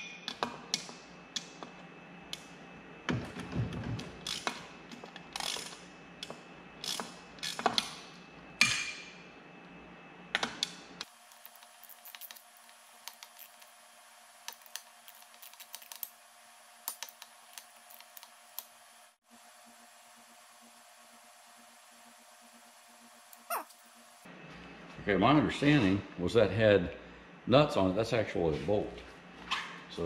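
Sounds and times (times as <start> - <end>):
ratchet wrench clicking: 4.2 - 4.6, 5.4 - 5.8, 6.8 - 7.7.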